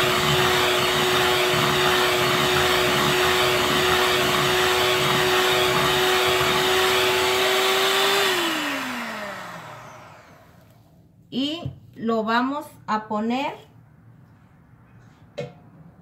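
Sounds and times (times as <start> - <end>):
electric hand mixer whine: 0.0 - 10.6
motor spinning down: 6.4 - 10.5.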